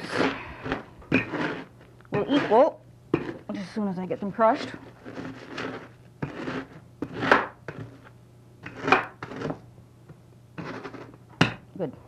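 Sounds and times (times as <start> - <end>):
cookies crunching in plastic bag: 4.6 - 6.8.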